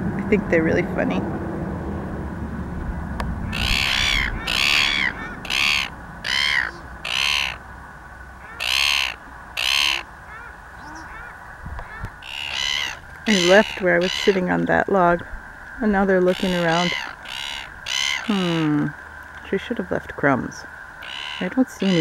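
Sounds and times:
gull screeching calls: 3.5s - 7.6s, 8.4s - 19.7s, 20.8s - 22.0s.

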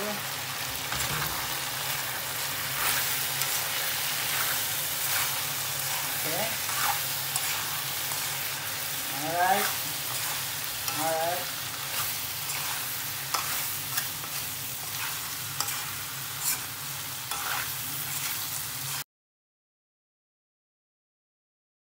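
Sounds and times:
food sizzling in frying pan: 0.0s - 19.1s
spoon scraping against pan: 2.6s - 19.0s.

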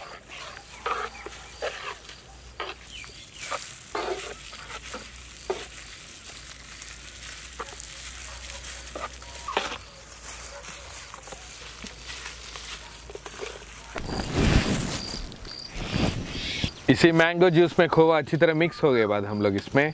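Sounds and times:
wet stirring and squelching: 0.0s - 14.1s.

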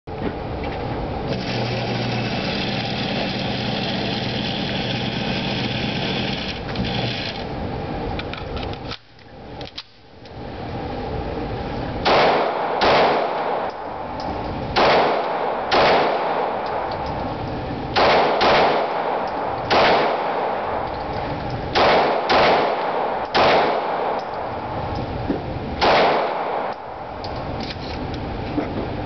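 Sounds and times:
pistol shots with echo: 12.0s - 13.9s, 14.8s - 16.9s, 17.9s - 20.9s, 21.7s - 24.5s, 25.8s - 26.9s.

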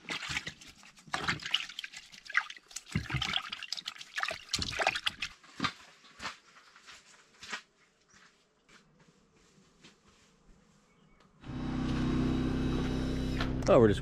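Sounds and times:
water trickling and splashing: 0.0s - 5.4s.

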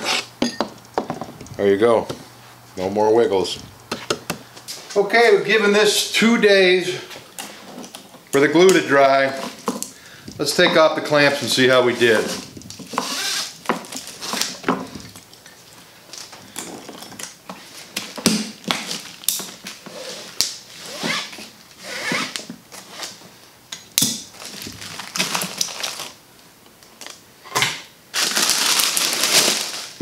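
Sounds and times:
plastic sheeting crinkling: 10.4s - 16.4s, 24.3s - 26.2s, 28.1s - 30.0s.

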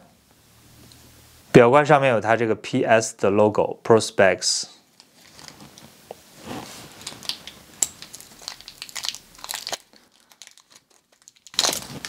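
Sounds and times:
plastic film crackling: 5.0s - 12.0s.

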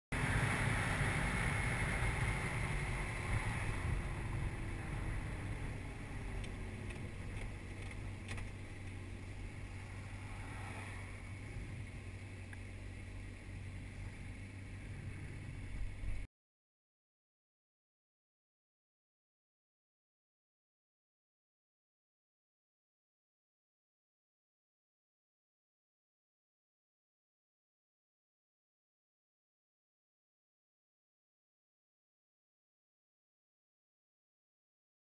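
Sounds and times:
motorcycle engine rumble: 0.1s - 16.3s.

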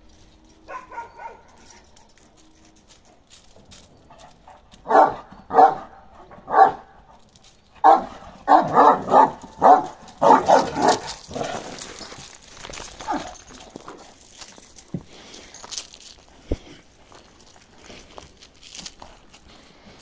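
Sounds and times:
dog barking: 0.7s - 1.8s, 4.8s - 7.0s, 7.8s - 11.2s, 13.0s - 13.4s.

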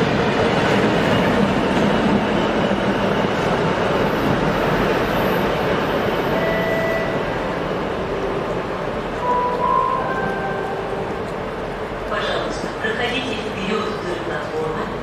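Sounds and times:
diesel locomotive engine rumbling: 0.0s - 15.0s.

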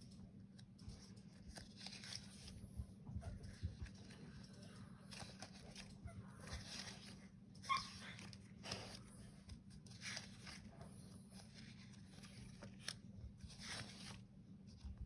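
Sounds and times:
dog squeaky whine: 7.6s - 8.2s.

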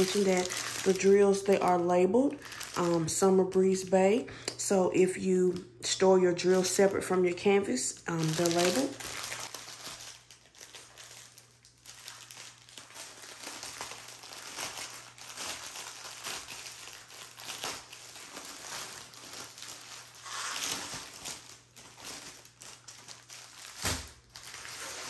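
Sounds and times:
plastic wrap crinkling: 0.0s - 4.2s, 6.3s - 25.0s.

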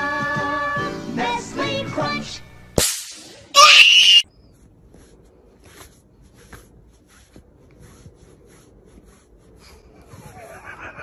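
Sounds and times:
hand stroking cat fur: 4.9s - 10.4s.

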